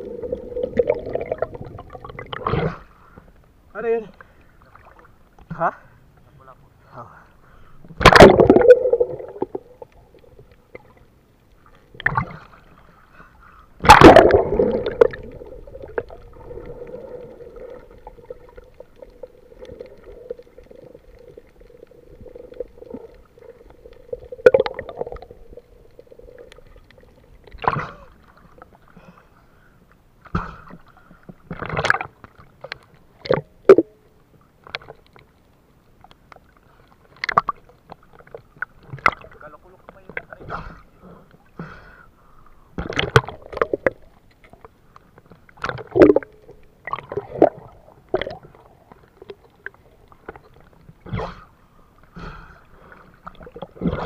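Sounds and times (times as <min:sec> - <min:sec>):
faint steady hum: 0:00.0 - 0:54.0
muffled water gurgling and sloshing: 0:00.0 - 0:54.0
water knocks and splashes: 0:08.0 - 0:09.6, 0:37.2 - 0:39.4, 0:42.8 - 0:44.1.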